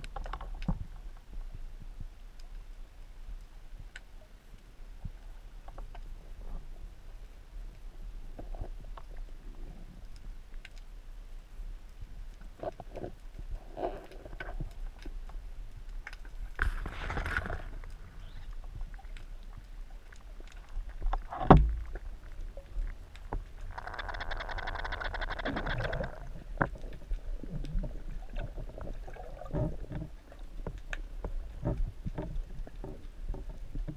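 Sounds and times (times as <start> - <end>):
water movement: 12.0 - 33.9
underwater clicks: 17.2 - 33.9.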